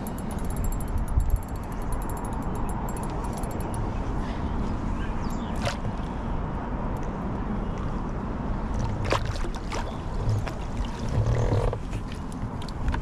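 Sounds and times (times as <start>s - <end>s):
water splashing: 8.6s - 13.0s
gear knocking against kayak: 9.0s - 13.0s.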